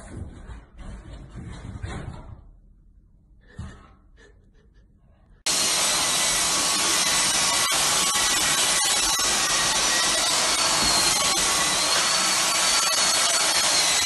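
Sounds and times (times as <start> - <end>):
stick vacuum cleaner whining: 5.5 - 14.0.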